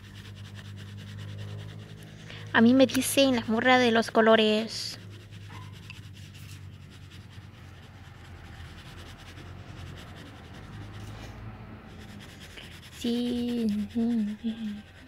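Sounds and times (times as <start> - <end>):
colored pencil scratching on paper: 0.0 - 15.0
person humming: 13.0 - 15.0.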